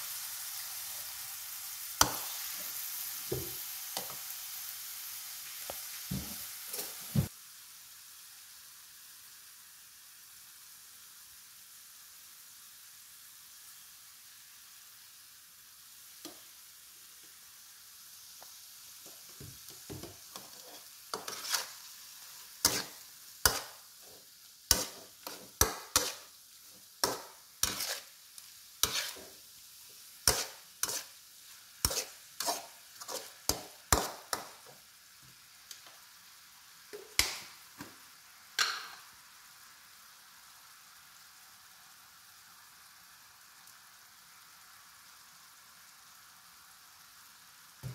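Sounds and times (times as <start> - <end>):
meat sizzling in a wok: 0.0 - 47.9
spatula scraping a wok: 6.6 - 7.2, 19.6 - 34.8.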